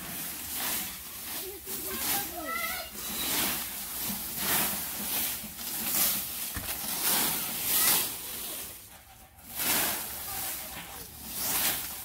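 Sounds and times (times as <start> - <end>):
rake scraping dry leaves: 0.0 - 12.0.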